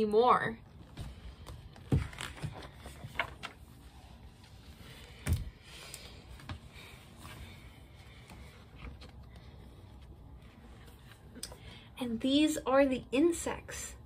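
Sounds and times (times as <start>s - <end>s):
book pages turning: 0.9s - 6.6s.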